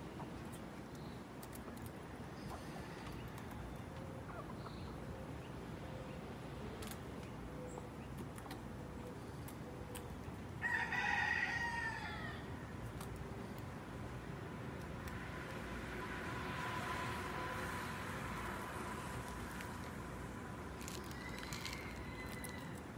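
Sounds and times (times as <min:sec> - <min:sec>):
rooster crowing: 0:10.6 - 0:12.5, 0:21.0 - 0:22.8.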